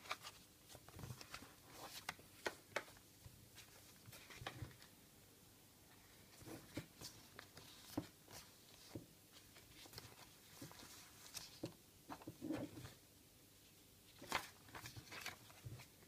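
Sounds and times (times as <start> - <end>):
paper leaflets rustling: 14.1 - 16.0.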